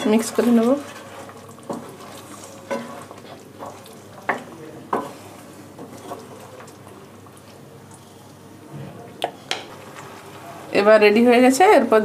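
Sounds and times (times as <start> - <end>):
spatula scraping a frying pan: 0.0 - 6.6, 9.4 - 11.1
gravy squelching: 0.2 - 8.4.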